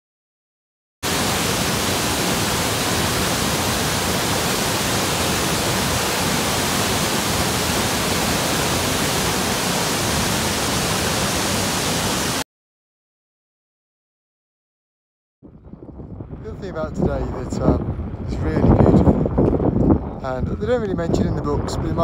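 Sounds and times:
waterfall pouring over rocks: 0:01.0 - 0:12.4.

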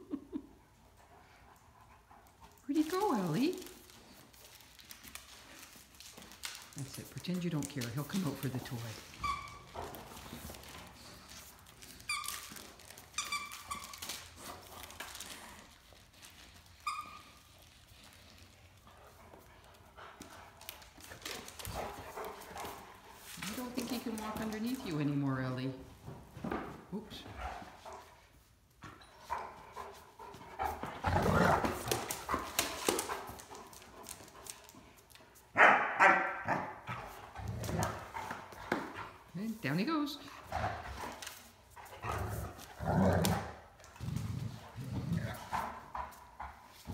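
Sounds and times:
dogs scuffling: 0:02.2 - 0:46.9
dog barking loudly: 0:35.6 - 0:36.8.

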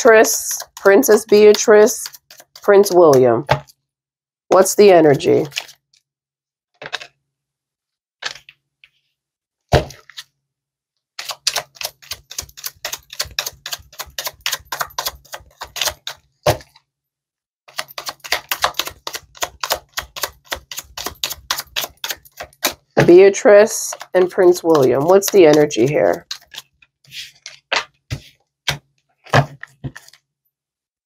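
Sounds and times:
cards being shuffled: 0:00.6 - 0:03.8, 0:05.4 - 0:06.0, 0:08.2 - 0:08.6, 0:11.2 - 0:16.7, 0:17.7 - 0:22.9, 0:23.6 - 0:30.2.

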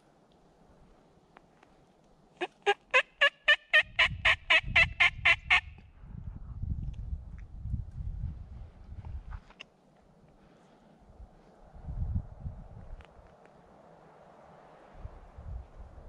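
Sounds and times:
turkey yelping: 0:02.4 - 0:05.7
low rumbling noise: 0:10.4 - 0:16.0.

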